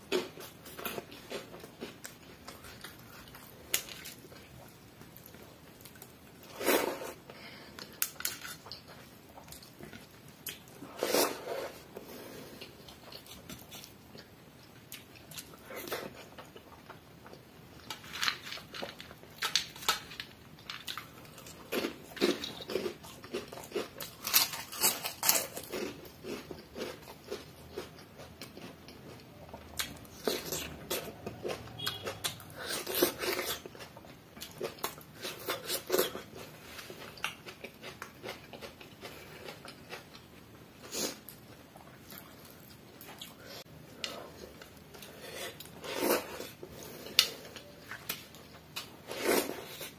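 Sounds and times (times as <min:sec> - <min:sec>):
chewing food: 0:12.4 - 0:49.9
crunching fried chips: 0:17.9 - 0:29.2.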